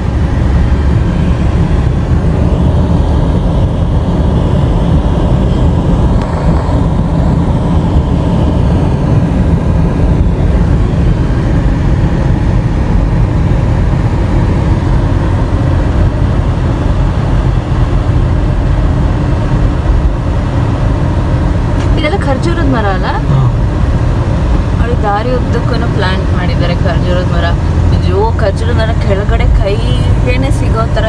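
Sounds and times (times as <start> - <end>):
car interior road rumble: 0.0 - 31.0.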